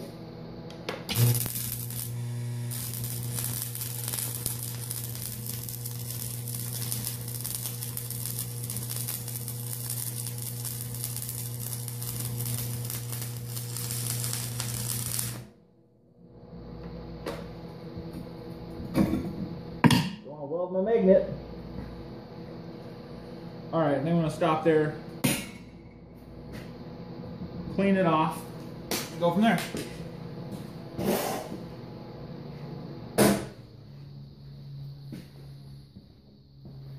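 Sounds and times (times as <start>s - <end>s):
welder low hum: 0.0s - 36.9s
welding arc crackling: 1.0s - 15.6s.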